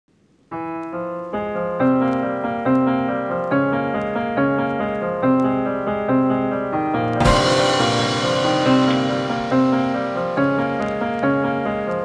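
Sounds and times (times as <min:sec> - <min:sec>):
solo piano music: 0:00.5 - 0:12.0
sharp crack with hiss: 0:07.3 - 0:11.3.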